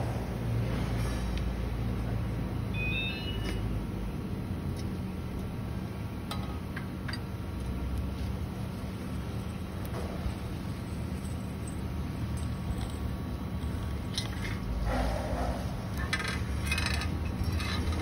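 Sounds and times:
metal frame parts clicking: 15.9s - 18.0s.

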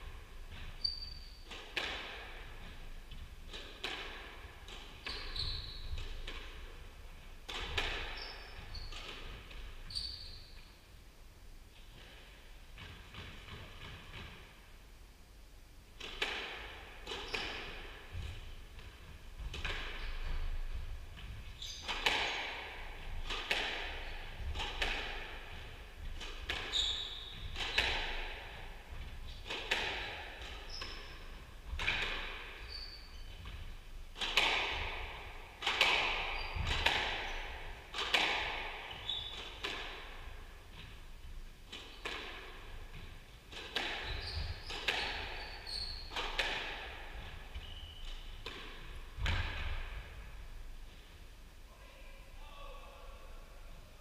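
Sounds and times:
shoes squeaking on court floor: 0.0s - 3.8s, 4.4s - 6.9s, 7.6s - 10.8s, 17.0s - 41.0s, 41.7s - 49.4s
squash ball cracking off rackets: 21.9s - 28.6s, 34.1s - 40.0s.

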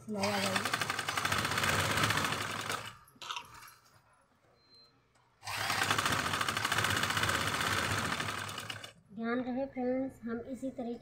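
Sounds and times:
sewing machine running: 0.1s - 3.0s, 5.4s - 9.0s.

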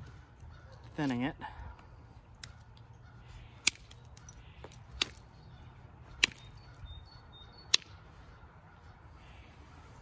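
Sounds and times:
billet striking flint: 3.4s - 5.4s, 6.1s - 6.9s, 7.6s - 8.0s.

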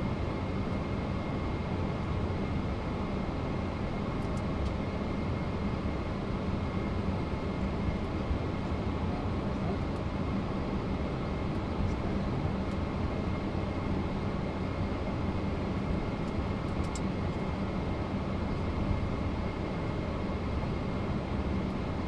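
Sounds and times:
aircraft cockpit low hum: 0.0s - 22.0s.

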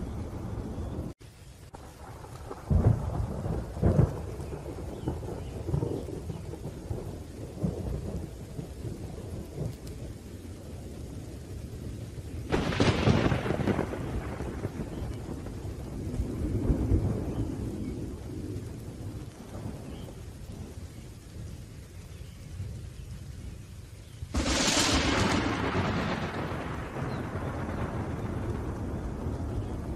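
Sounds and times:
rolling thunder: 0.0s - 29.9s
steady rain: 0.0s - 29.9s
sharp thunderclap: 1.7s - 10.0s, 12.5s - 20.8s, 24.3s - 29.9s.

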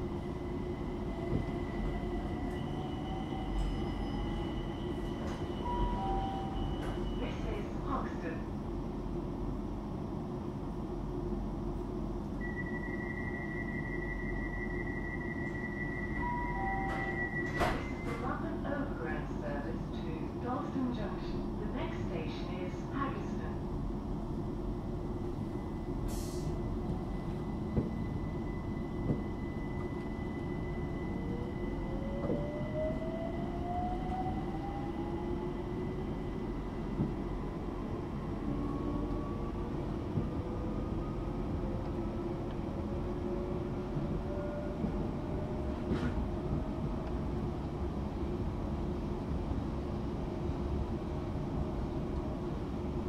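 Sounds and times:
wheels rumbling on rail: 24.2s - 53.0s.

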